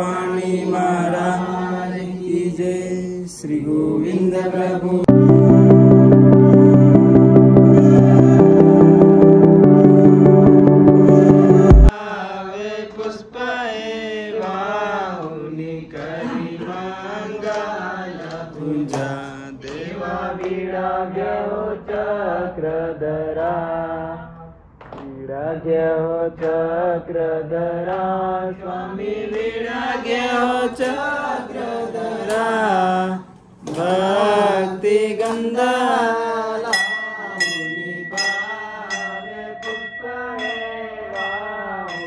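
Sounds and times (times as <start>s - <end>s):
man singing a devotional chant: 0.0s - 5.1s, 11.9s - 24.2s, 25.0s - 42.0s
hand claps: 13.0s - 13.2s, 14.3s - 16.2s, 17.4s - 20.6s, 22.6s - 23.6s, 24.8s - 25.2s, 26.3s - 26.9s, 27.8s - 28.2s, 29.2s - 29.6s, 33.6s - 34.0s, 35.2s - 35.5s.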